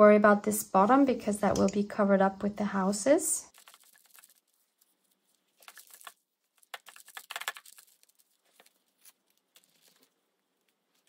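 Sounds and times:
paper rustling and tapping: 3.5s - 4.9s, 5.6s - 10.1s.

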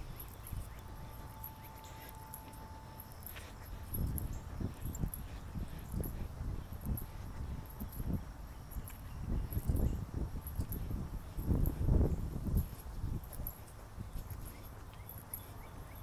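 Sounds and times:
footsteps on asphalt: 0.0s - 16.0s
insects ticking: 0.0s - 16.0s.

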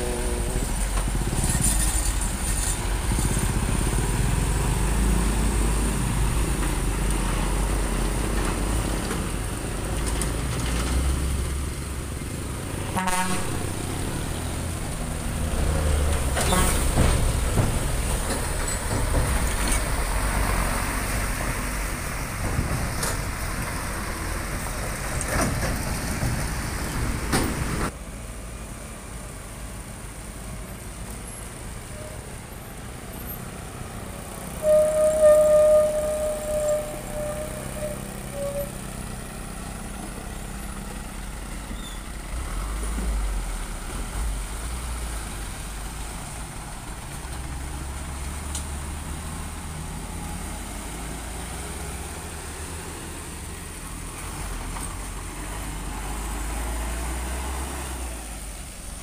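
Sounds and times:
heavy trucks passing: 0.0s - 59.0s
truck horn toot: 12.9s - 14.0s, 16.4s - 17.0s, 34.6s - 38.9s.

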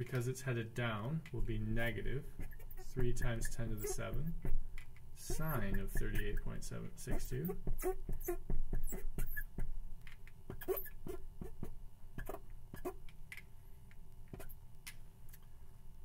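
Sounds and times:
marker scratching on board: 1.8s - 4.6s, 5.2s - 9.7s, 10.5s - 13.0s, 14.3s - 14.6s.

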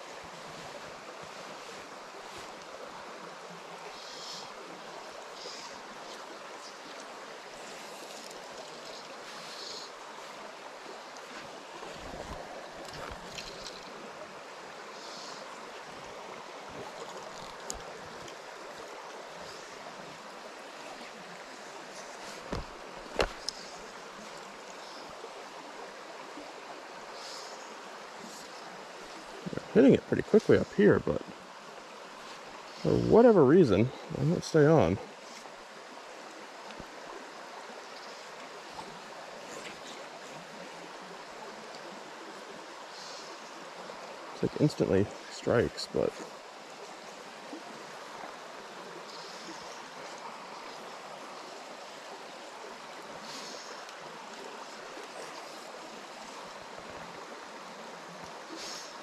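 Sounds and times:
stream rushing over stones: 0.0s - 59.0s.

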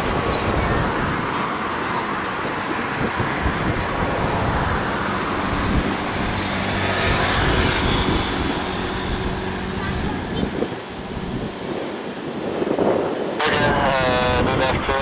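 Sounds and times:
jet engines running: 0.0s - 15.0s.

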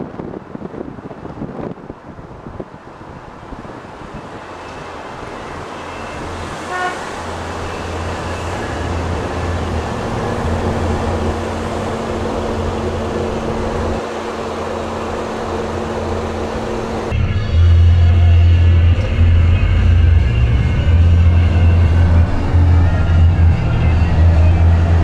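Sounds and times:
car road and engine noise: 0.0s - 25.0s.

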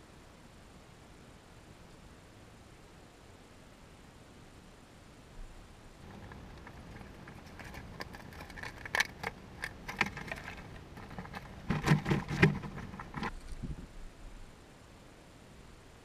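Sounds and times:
chipmunk scrabbling and clicking: 6.0s - 13.8s.

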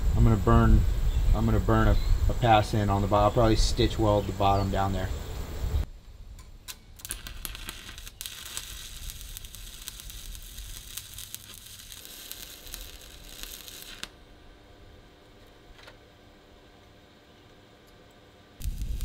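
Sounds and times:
welding arc crackling: 7.0s - 14.3s, 18.6s - 19.0s.

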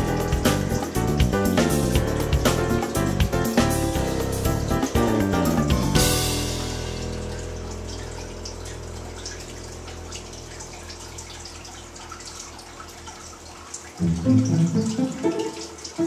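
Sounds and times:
water trickling and dripping: 0.0s - 16.0s
sustained music chord: 14.0s - 16.0s.

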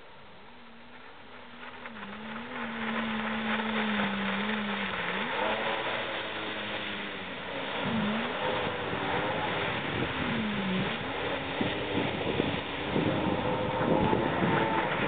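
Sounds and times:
jet ski engine: 0.0s - 15.0s
water spray rushing: 0.9s - 15.0s.

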